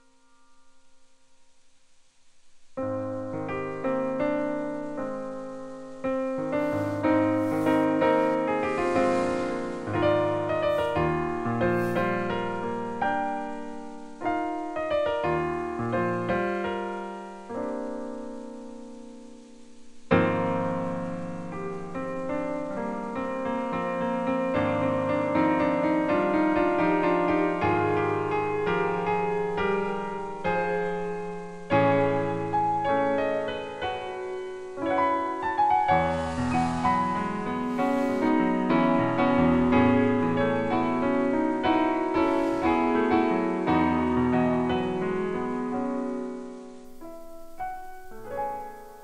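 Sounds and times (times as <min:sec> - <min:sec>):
piano music: 0:32.2 - 0:49.0.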